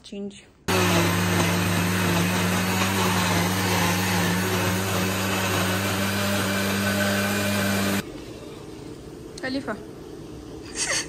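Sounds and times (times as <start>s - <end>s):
blender motor running: 0.7s - 8.0s.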